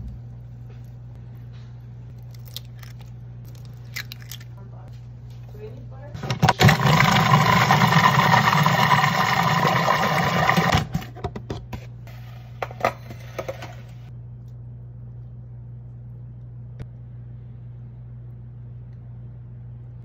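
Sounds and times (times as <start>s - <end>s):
food processor motor running: 6.2s - 11.0s.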